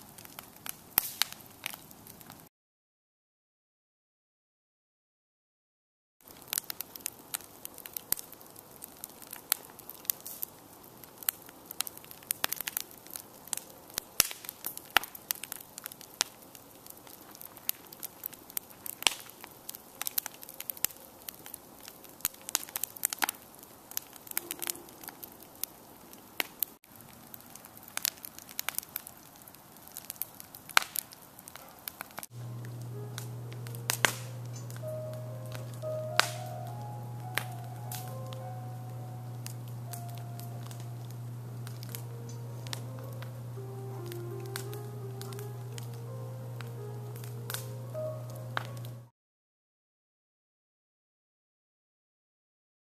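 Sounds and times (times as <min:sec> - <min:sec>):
wood fire crackling: 0:00.0 - 0:02.5, 0:06.2 - 0:49.1
low hum with faint tones: 0:32.3 - 0:49.1.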